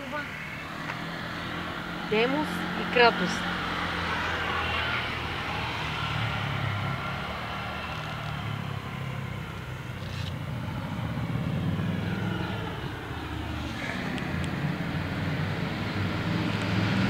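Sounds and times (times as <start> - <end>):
outdoor background rumble: 0.0 - 17.0.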